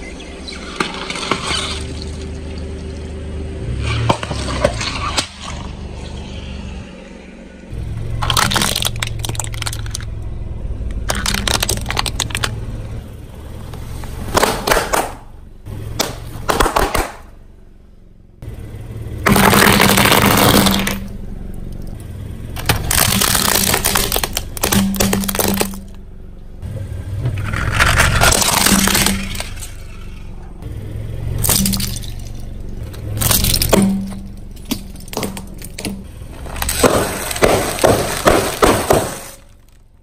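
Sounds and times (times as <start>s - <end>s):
low hum: 0.0s - 40.0s
tyre crushing objects: 19.2s - 21.0s, 22.6s - 26.0s, 27.2s - 29.8s, 32.9s - 39.8s
glass vials breaking: 31.4s - 32.4s.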